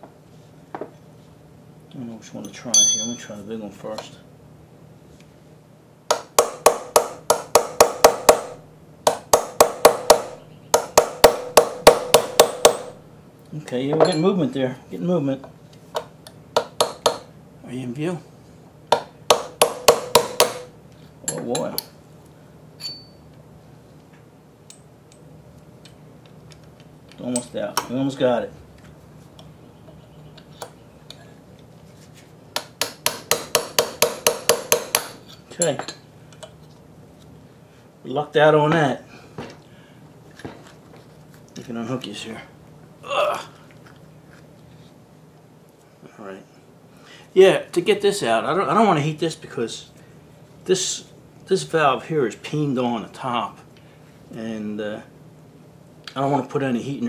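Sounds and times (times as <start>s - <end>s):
hammer tapping metal punch: 2.8s - 3.3s, 6.1s - 13.0s, 16.0s - 17.3s, 18.9s - 21.9s, 22.8s - 23.2s, 32.6s - 36.6s.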